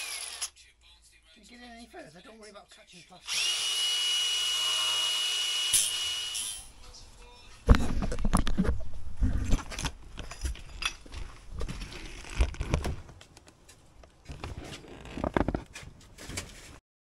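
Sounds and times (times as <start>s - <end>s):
camera handling knocks and rubbing: 7.7s - 13.5s, 14.3s - 15.9s.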